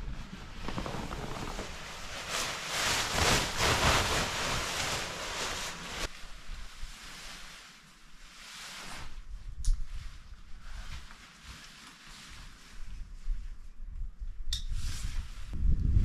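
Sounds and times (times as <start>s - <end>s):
nylon tent sheet rustling: 0.0s - 13.5s
wind buffeting microphone: 15.5s - 16.0s.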